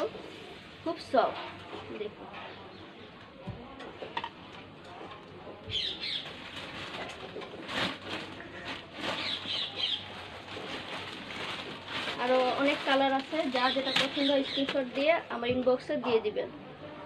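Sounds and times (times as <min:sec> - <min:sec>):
cloth rustling: 0:06.1 - 0:15.2.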